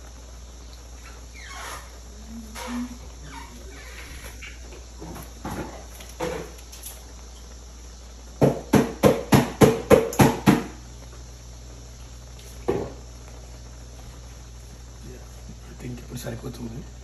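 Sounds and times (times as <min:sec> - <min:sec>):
sharp knocks: 0:08.4 - 0:10.8.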